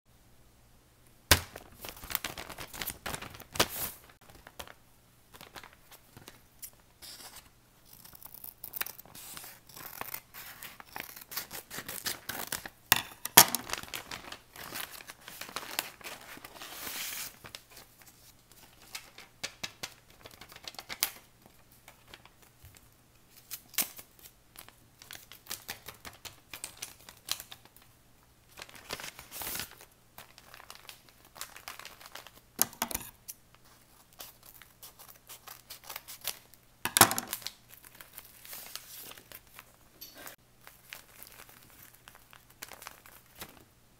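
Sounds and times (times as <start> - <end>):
scissors snipping paper: 7.1 - 12.7.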